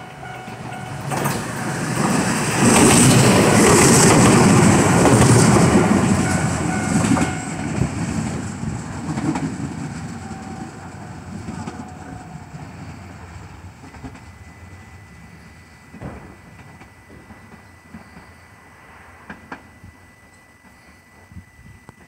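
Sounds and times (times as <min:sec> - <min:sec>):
electric train passing: 0:00.0 - 0:22.0
wheels clacking over rail joints: 0:00.4 - 0:12.8.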